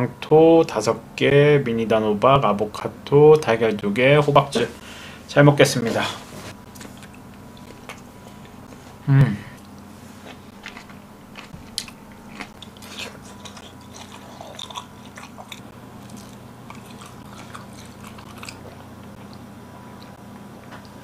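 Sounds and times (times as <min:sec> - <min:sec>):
person chewing food: 0:06.7 - 0:09.0, 0:09.6 - 0:21.0.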